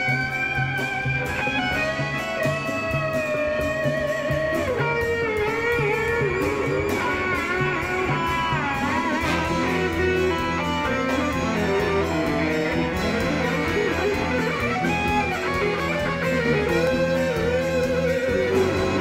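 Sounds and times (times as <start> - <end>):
bass: 0.0 - 19.0
electric guitar lead line: 0.0 - 19.0
rock band playing: 0.0 - 19.0.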